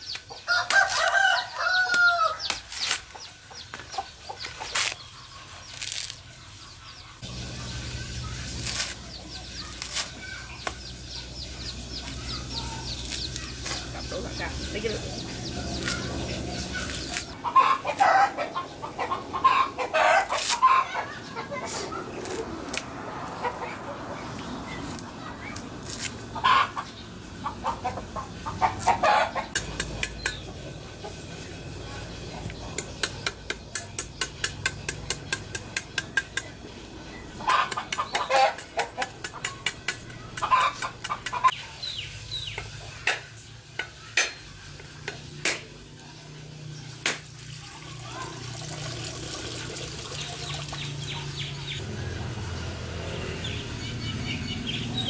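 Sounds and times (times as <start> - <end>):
chickens clucking: 0.1 - 25.6, 26.3 - 45.6
cleaver knocking coconut shell: 32.8 - 36.6.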